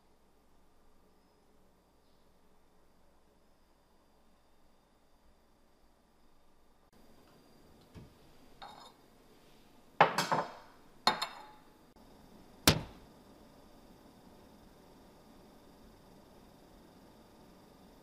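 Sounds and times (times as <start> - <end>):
dishes clinking and clattering: 8.6 - 9.0, 10.0 - 11.7
cupboard knock: 12.7 - 13.0.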